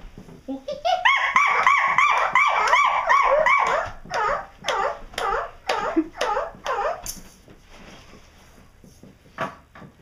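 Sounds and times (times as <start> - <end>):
dog-like yipping and whimpering: 0.9 - 7.1.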